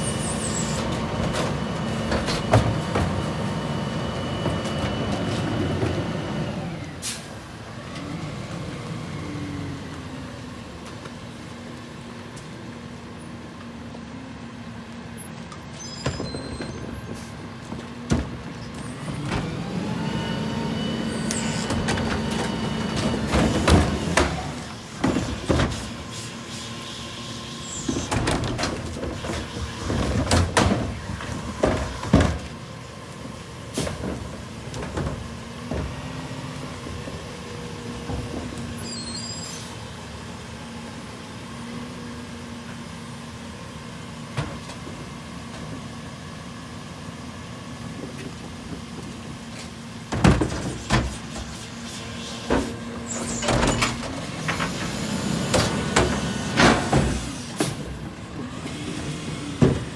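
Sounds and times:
carts clanking against hopper: 0:52.4 - 0:58.8.

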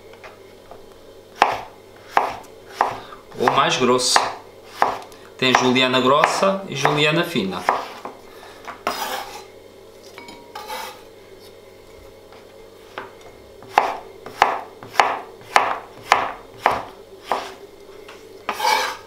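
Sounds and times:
knife chopping on cutting board: 0:01.4 - 0:07.0, 0:07.6 - 0:09.4, 0:12.9 - 0:17.6, 0:18.5 - 0:19.0.

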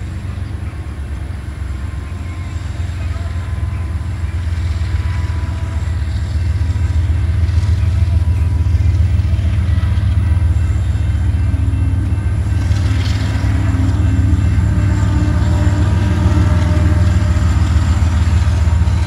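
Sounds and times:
freight train rumbling on rails: 0:00.0 - 0:19.0.

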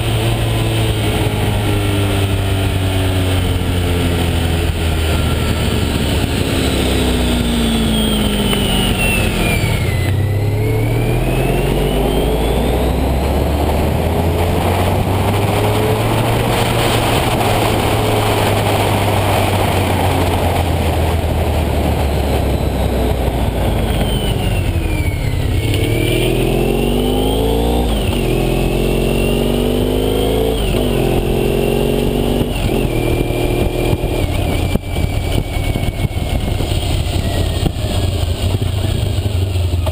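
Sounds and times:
wind rushing: 0:00.0 - 0:38.3
motorcycle engine: 0:00.0 - 0:39.9
gear whine: 0:02.7 - 0:39.9.

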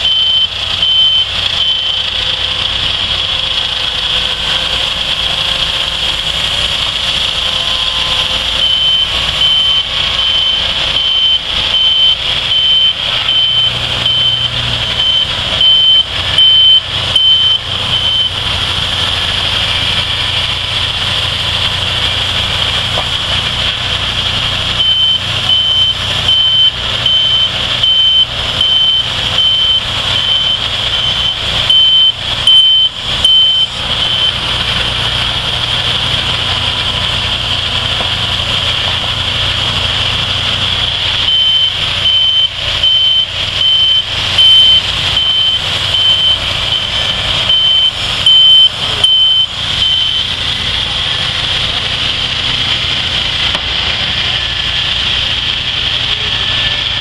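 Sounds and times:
electronic warning beep: 0:00.0 - 0:02.1, 0:07.5 - 0:18.5, 0:24.8 - 0:34.4, 0:41.2 - 0:50.4
high even saw whine: 0:00.0 - 0:57.0
sawmill engine humming: 0:00.0 - 0:57.0.

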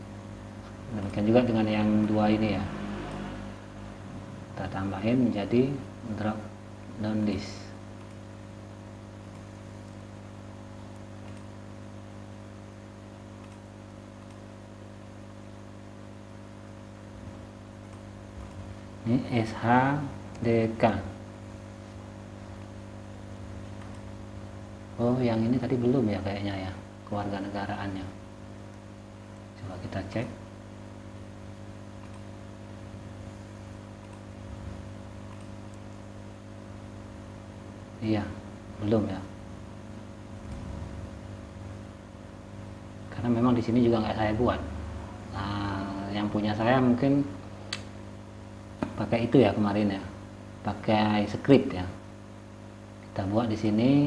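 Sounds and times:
electrical hum with hiss: 0:00.0 - 0:54.0
mouse clicks: 0:08.0 - 0:08.2, 0:09.2 - 0:10.0, 0:10.9 - 0:11.5, 0:13.4 - 0:14.4, 0:23.8 - 0:24.1, 0:32.0 - 0:32.3, 0:34.0 - 0:34.4, 0:35.2 - 0:35.9.

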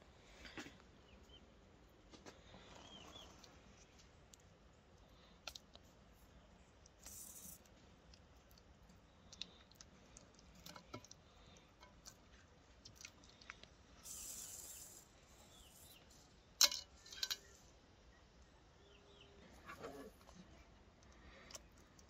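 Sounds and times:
brief hiss: 0:14.0 - 0:15.1.

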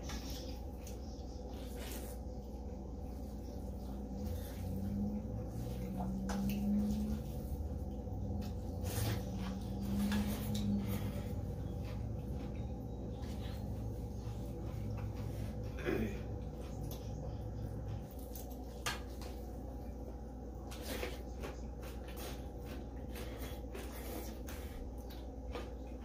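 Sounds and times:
low hum: 0:00.0 - 0:26.0.

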